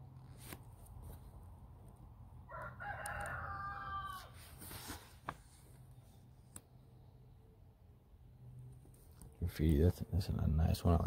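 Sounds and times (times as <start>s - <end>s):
rooster crowing: 2.5s - 4.4s.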